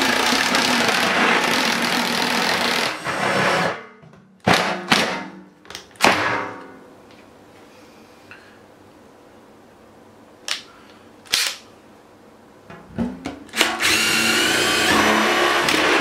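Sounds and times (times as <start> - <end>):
power drill whining: 0.0 - 3.8, 13.6 - 16.0.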